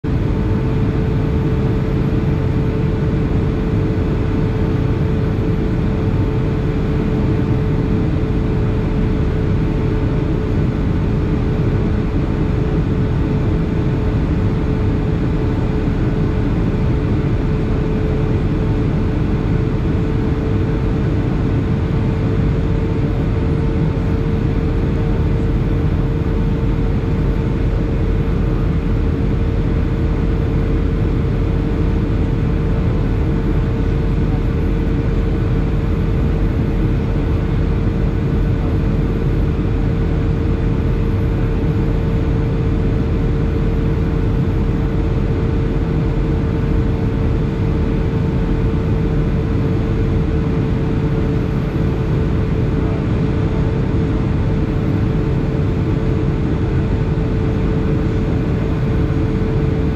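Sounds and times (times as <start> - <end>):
aircraft engines droning: 0.0 - 59.9
steady hum: 0.0 - 59.9.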